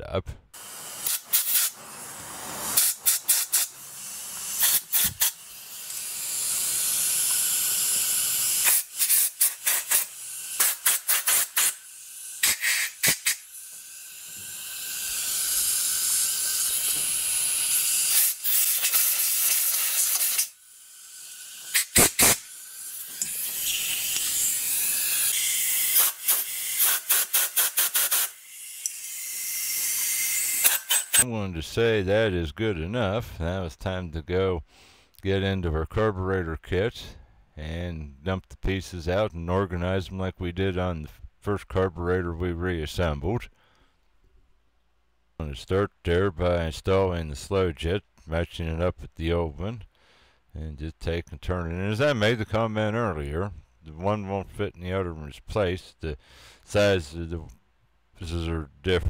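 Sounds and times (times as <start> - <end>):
compressed air blow gun hissing: 0.6 - 20.6, 21.2 - 28.4.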